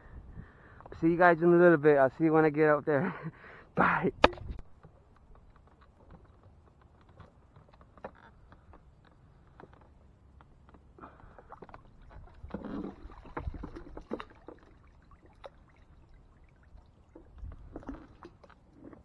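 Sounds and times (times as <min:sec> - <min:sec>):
water splashing and dripping: 0:11.2 - 0:19.0.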